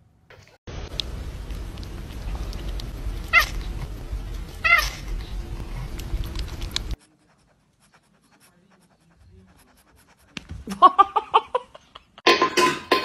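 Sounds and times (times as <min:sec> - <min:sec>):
steady low background noise: 0:00.0 - 0:07.0
cat meowing: 0:02.6 - 0:03.8, 0:04.4 - 0:05.4.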